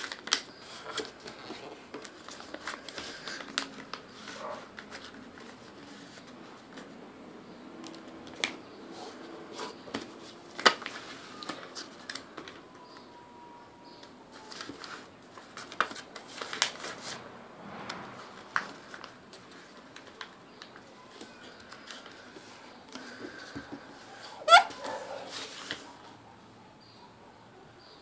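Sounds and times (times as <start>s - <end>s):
paper being folded and creased: 0.0s - 6.9s, 14.3s - 17.2s, 17.9s - 22.6s, 25.3s - 25.9s.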